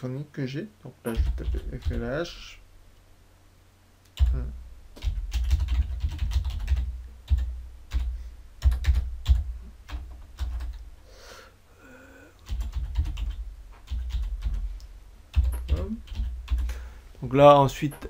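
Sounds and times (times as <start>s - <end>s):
typing on computer keyboard: 1.1s - 2.0s, 5.0s - 10.8s, 12.4s - 14.6s, 15.3s - 16.7s.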